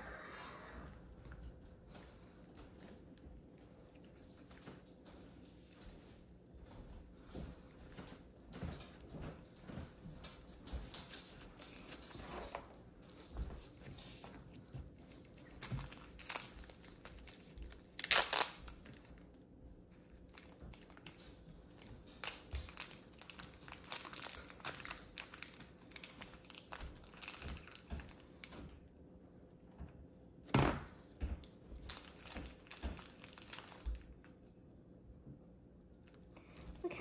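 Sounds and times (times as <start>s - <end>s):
plastic bag crinkling: 10.8s - 19.4s, 20.0s - 28.5s, 31.8s - 34.3s
slime squelching and crackling: 10.8s - 19.4s, 20.0s - 28.5s, 31.8s - 34.3s.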